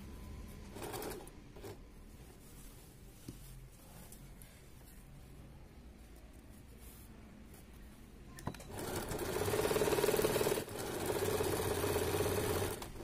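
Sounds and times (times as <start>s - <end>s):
sewing machine stitching: 8.5s - 13.0s.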